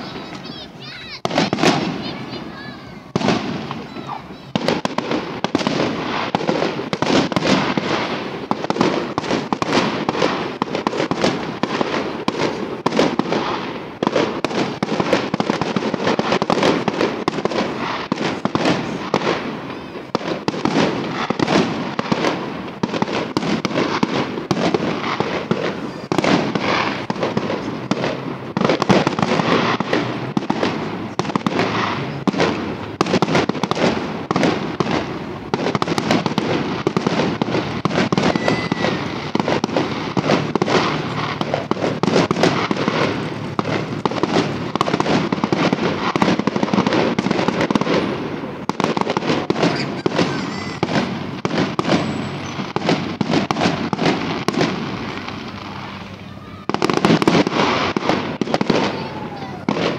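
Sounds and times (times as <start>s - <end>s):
fireworks bangs and crackles: 0.0s - 59.9s.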